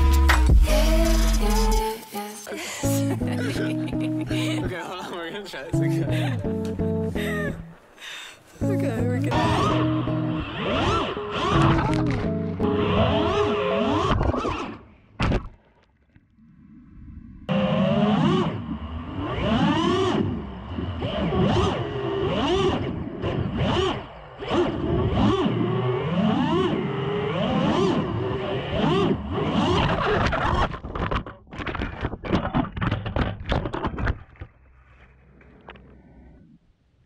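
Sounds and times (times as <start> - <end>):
quadcopter motors revving: 9.3 - 12.0, 17.5 - 30.6.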